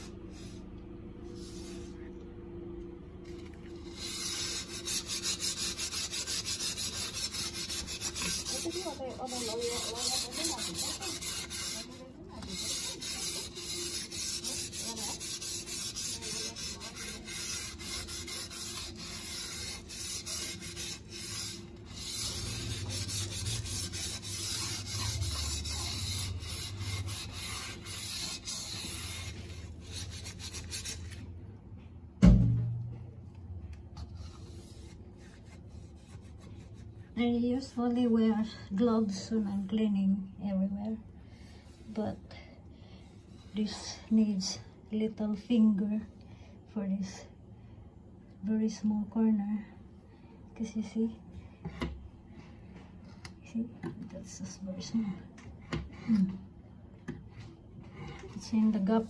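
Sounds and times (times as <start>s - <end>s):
cloth scrubbing window frame: 3.9s - 31.2s
loud thump: 32.2s - 33.0s.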